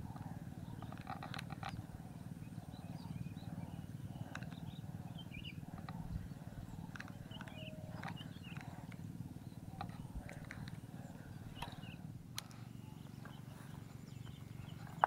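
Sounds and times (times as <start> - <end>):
light ticks: 4.2 - 4.8, 6.7 - 9.0.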